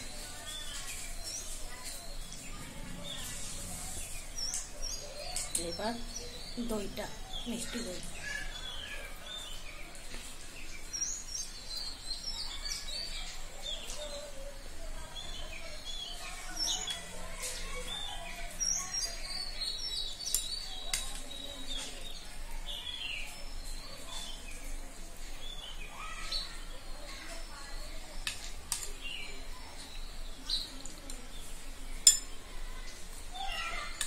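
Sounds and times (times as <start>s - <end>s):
small birds chirping: 0.0s - 34.0s
metal spoon clicking on steel bowl: 32.1s - 32.3s.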